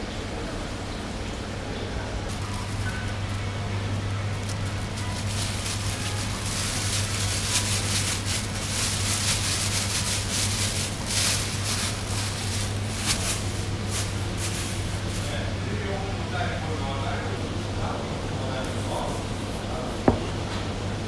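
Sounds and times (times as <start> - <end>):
plastic bag crinkling and rustling: 2.2 - 15.5.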